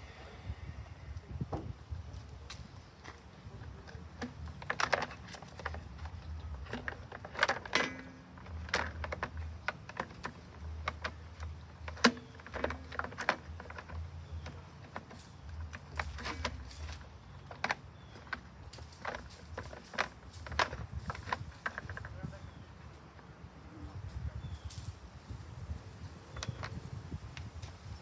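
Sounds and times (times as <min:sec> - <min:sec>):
hands handling plastic parts: 0:02.1 - 0:23.3.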